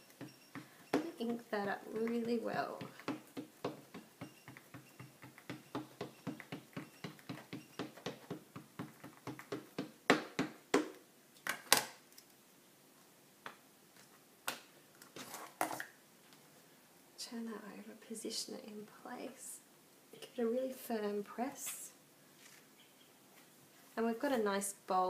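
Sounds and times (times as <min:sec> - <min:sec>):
ink pad tapping on stamp: 0:02.0 - 0:10.9.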